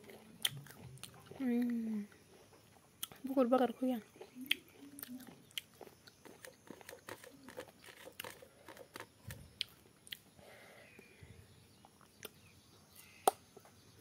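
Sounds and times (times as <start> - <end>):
chewing with wet mouth clicks: 0.0 - 3.2, 4.1 - 10.3.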